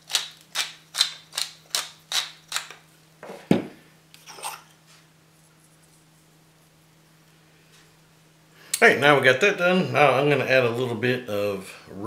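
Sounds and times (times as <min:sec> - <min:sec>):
thump: 0:03.5 - 0:03.7.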